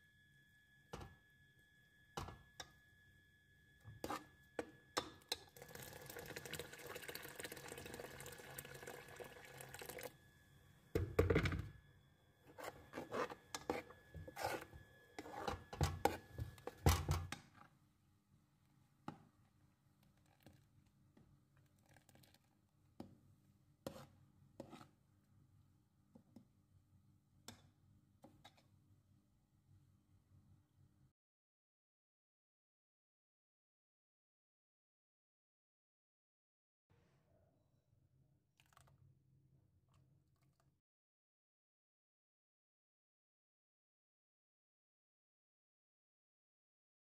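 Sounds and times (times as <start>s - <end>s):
metal spoon stirring in pot: 4.0s - 10.1s, 12.5s - 17.7s, 23.8s - 25.0s.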